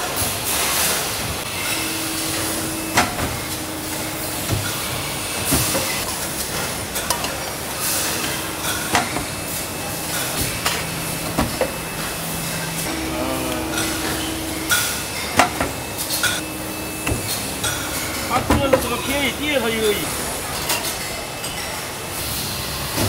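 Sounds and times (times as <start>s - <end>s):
machines humming and hissing: 0.0s - 23.0s
sharp metallic knocks: 1.7s - 7.3s.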